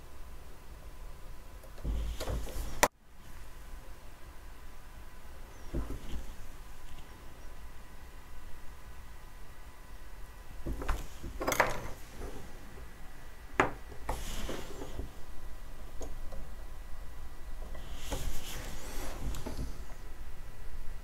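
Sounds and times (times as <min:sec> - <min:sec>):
rustling: 0:13.8 - 0:20.2.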